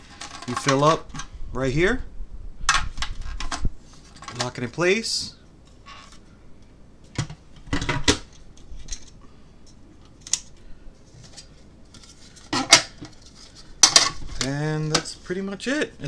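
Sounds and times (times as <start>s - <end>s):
plastic parts clicking and knocking: 0.1s - 1.3s, 13.8s - 15.1s.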